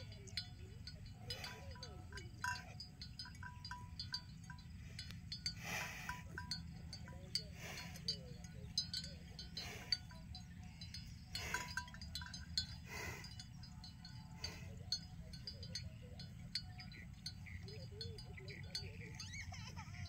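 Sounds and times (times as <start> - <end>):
steady low rumble: 0.0 - 19.2
small metal bell clinking: 0.0 - 20.0.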